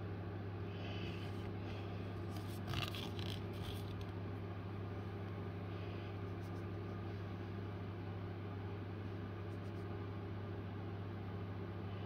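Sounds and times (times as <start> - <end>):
steady low hum: 0.0 - 12.0
cardboard palette rustling: 2.2 - 4.1.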